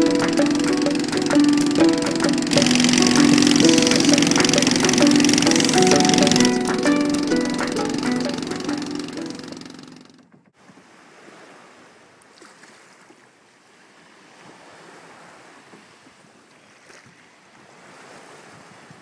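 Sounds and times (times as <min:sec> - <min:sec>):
small waves washing ashore: 0:10.6 - 0:19.0.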